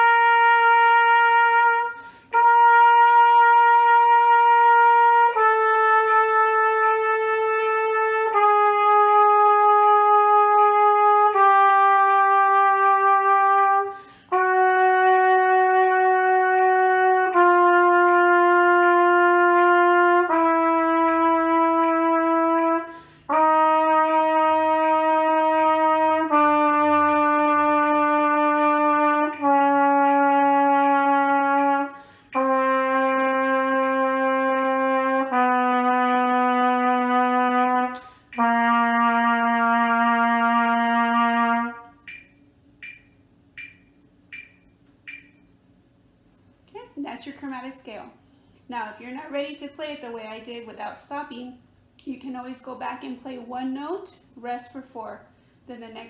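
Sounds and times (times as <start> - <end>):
trumpet playing scale: 0.0 - 43.0
metronome ticking: 0.0 - 45.7.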